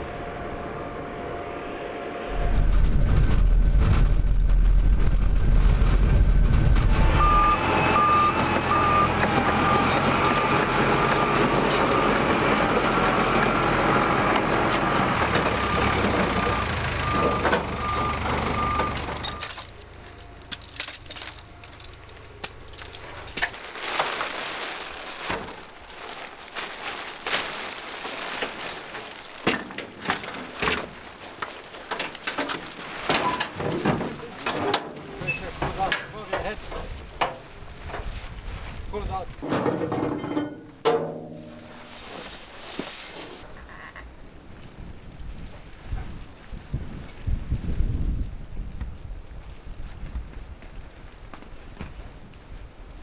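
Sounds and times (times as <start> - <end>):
reversing beeper: 0.0 - 2.7, 6.9 - 20.4
diesel engine running: 0.0 - 23.4.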